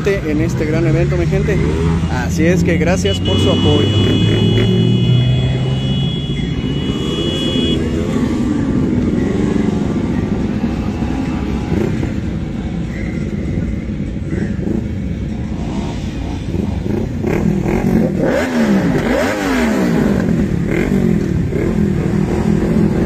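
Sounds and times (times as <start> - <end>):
motorcycle engines revving: 0.0 - 23.0.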